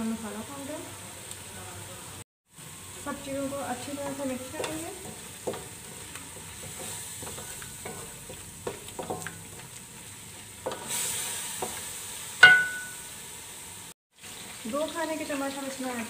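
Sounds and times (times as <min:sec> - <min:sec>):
food sizzling in pan: 0:00.0 - 0:16.0
spatula scraping and stirring in pan: 0:03.6 - 0:13.3
spatula knocking on metal pan: 0:12.4 - 0:13.0.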